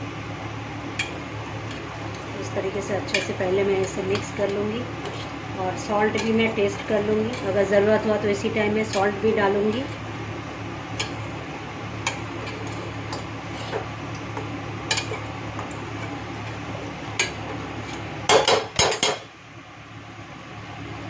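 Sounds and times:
metal spoon stirring in a pot: 1.0s - 11.4s, 12.0s - 19.2s
spoon clanking against pot: 11.0s - 11.3s, 14.4s - 16.2s, 18.3s - 19.2s.

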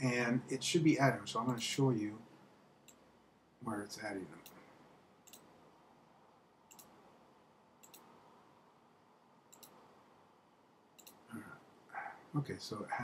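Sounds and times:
room hiss: 0.0s - 13.0s
computer mouse clicks: 2.8s - 3.0s, 5.2s - 5.5s, 6.7s - 7.0s, 7.8s - 8.1s, 9.5s - 9.8s, 11.0s - 11.3s.

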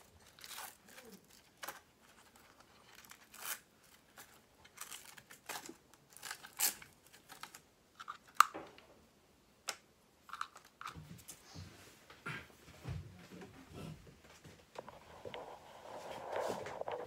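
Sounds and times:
hands rustling and scraping: 14.4s - 17.0s.

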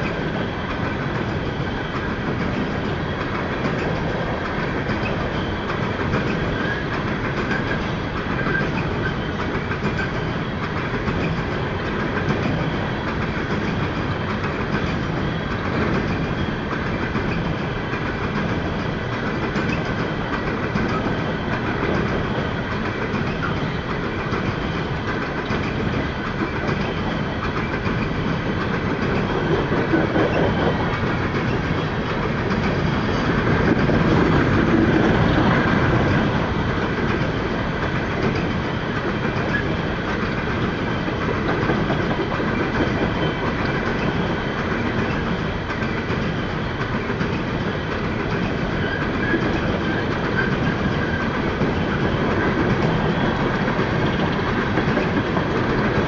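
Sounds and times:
freight train wheels on rails: 0.0s - 56.0s.

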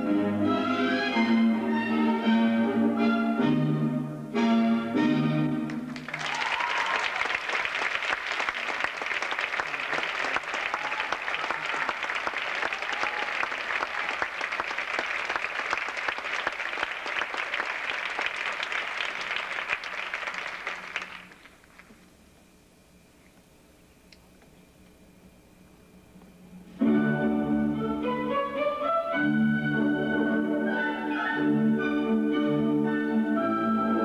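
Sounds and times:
audience applauding: 5.7s - 22.0s.

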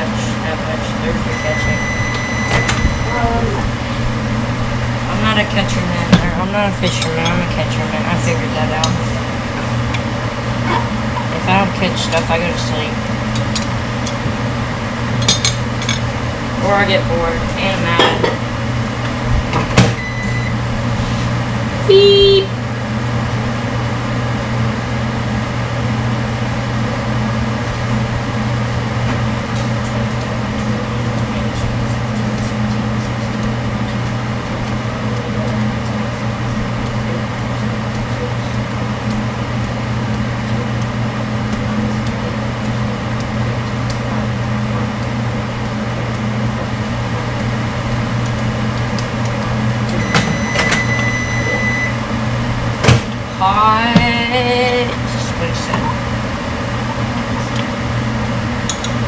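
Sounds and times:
microwave oven humming: 0.0s - 59.0s
high beep: 1.3s - 3.3s, 20.0s - 20.6s, 50.0s - 52.0s.

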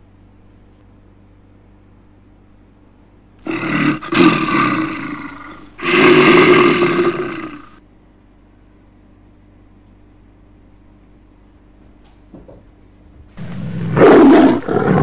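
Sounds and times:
animal roaring: 3.4s - 7.8s, 13.4s - 15.0s.

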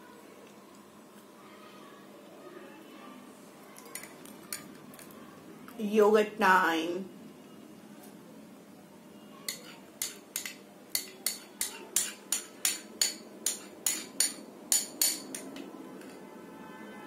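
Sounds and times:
metal spoon clinking on glass bowl: 3.8s - 5.1s, 9.5s - 16.2s.

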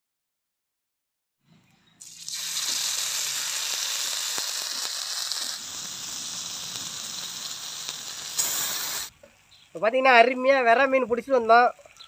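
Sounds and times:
fish sizzling in hot oil: 2.0s - 9.1s.

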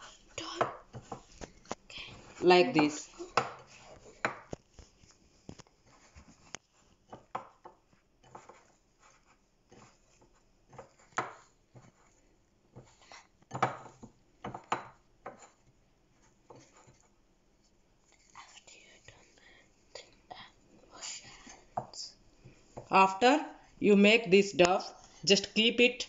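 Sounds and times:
hands kneading dough in a plate: 0.0s - 19.9s.

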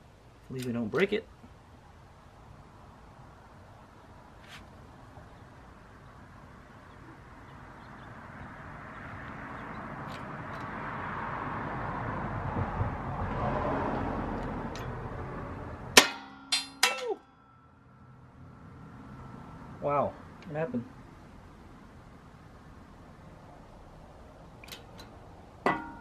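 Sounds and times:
sharp metal clanks: 16.0s - 17.7s, 24.6s - 26.0s.

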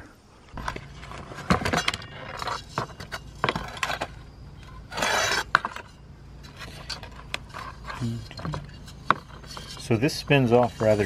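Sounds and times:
metal scraping on work surface: 4.7s - 11.0s.

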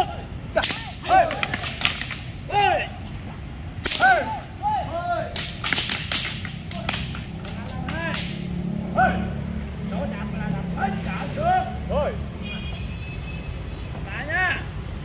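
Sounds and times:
wooden staffs clacking: 0.5s - 2.6s, 3.2s - 4.4s, 5.3s - 8.5s
staffs whooshing through air: 5.3s - 9.0s.

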